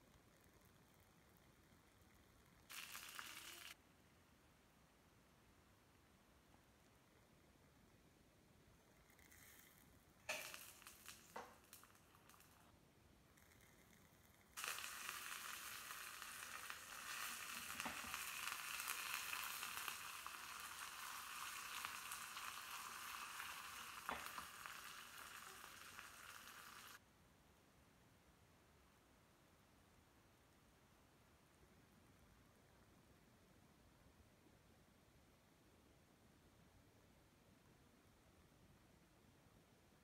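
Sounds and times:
hot oil crackling and popping: 0.0s - 3.8s, 9.0s - 12.7s, 13.4s - 27.0s
leaves sizzling in oil: 2.7s - 3.8s, 10.2s - 12.7s, 14.6s - 27.0s.

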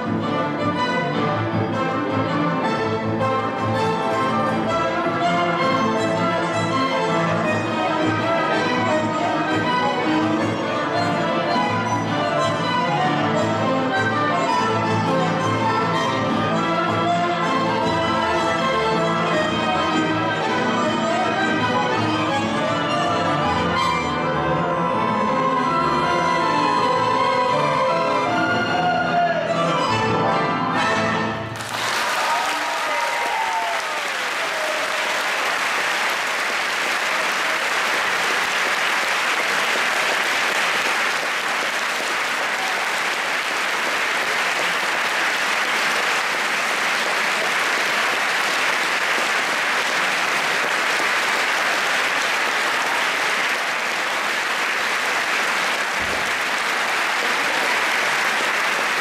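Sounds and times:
audience applauding: 31.5s - 59.0s.

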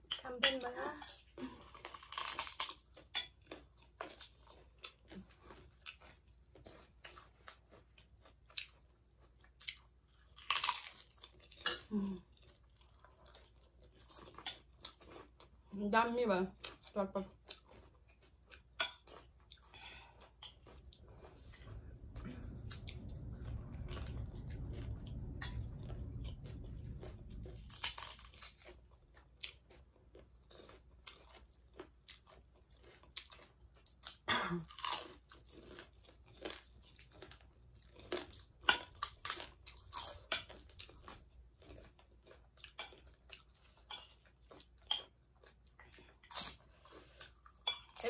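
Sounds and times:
chewing and crunching snacks: 0.0s - 48.0s
low rumble: 19.7s - 30.5s, 37.0s - 41.6s.

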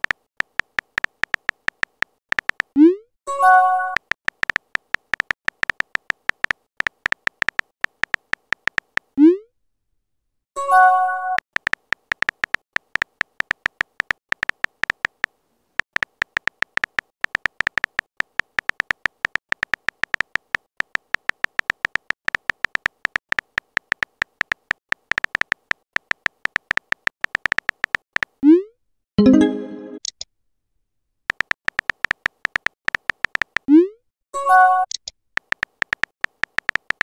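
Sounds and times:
synthetic keyboard typing ticks: 0.0s - 9.4s, 11.1s - 28.6s, 31.3s - 33.9s, 34.7s - 37.0s.

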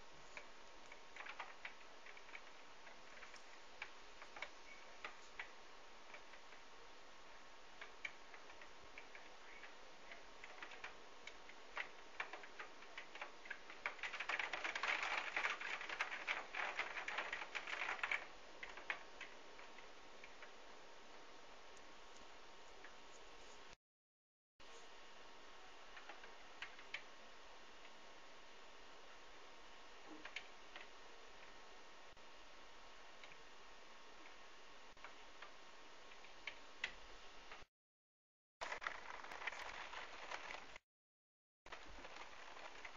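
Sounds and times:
raindrops tapping on window: 0.4s - 6.6s, 7.8s - 20.6s, 38.6s - 40.8s, 41.7s - 42.9s.

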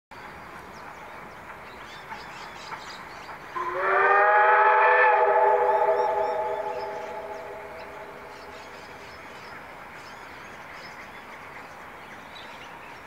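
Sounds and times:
faint birdsong: 0.1s - 4.2s, 4.8s - 13.0s
steam locomotive whistle: 3.6s - 8.6s.

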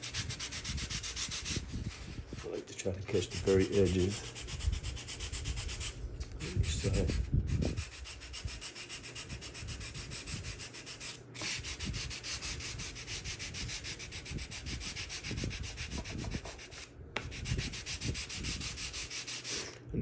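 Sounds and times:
sandpaper rubbing on wood: 0.0s - 19.8s.

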